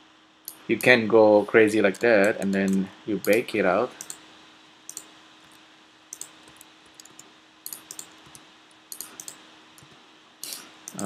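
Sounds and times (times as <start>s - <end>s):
faint steady hum: 0.0s - 11.0s
mouse and keyboard clicks: 4.0s - 4.2s, 6.2s - 11.0s.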